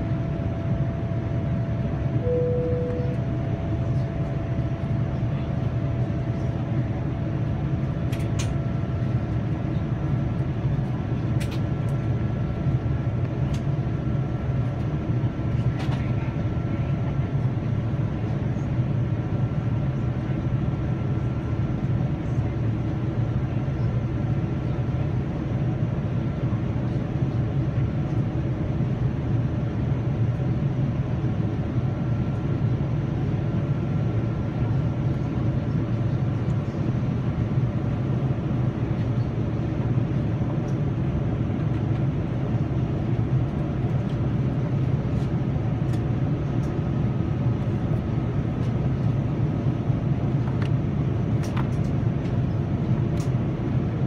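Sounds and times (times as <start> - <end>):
aircraft cabin engine drone: 0.0 - 54.0
faint high tone: 2.2 - 3.3.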